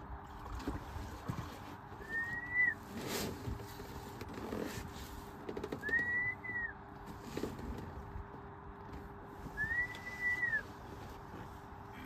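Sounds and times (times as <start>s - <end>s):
faint steady hum: 0.0s - 12.0s
whistled notes: 2.0s - 2.8s, 5.8s - 6.8s, 9.6s - 10.7s.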